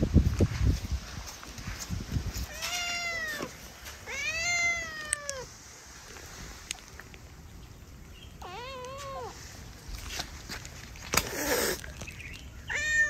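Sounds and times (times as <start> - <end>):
cat meowing: 2.5 - 5.5, 8.4 - 9.4, 12.7 - 13.0.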